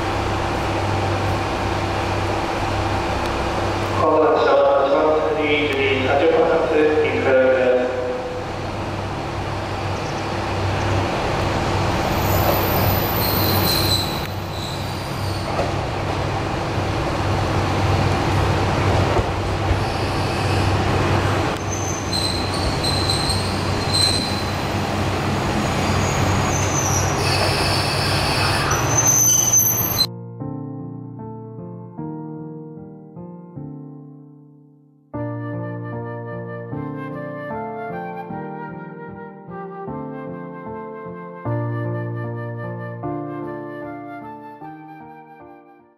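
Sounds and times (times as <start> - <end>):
diesel railcar engine droning: 0.0 - 30.1
brake and wheel squeals: 12.1 - 15.6, 19.8 - 20.8, 21.6 - 24.7, 25.7 - 30.1.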